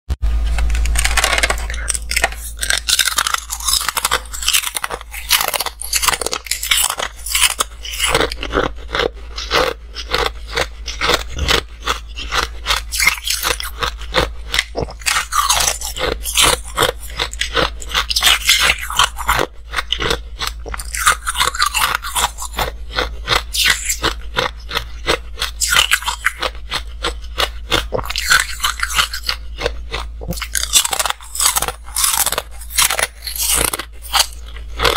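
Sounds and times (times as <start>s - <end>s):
steady low hum: 0.2s - 34.9s
ice sticks crackling on plastic tray: 0.7s - 7.6s.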